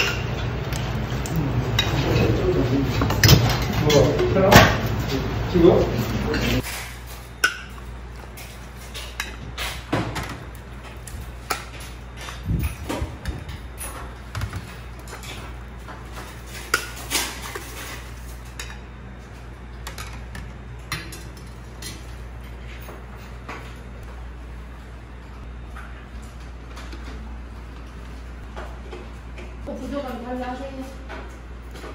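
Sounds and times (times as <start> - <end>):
ladle and bowls clinking: 0.0 - 4.4
steady low hum: 0.0 - 31.9.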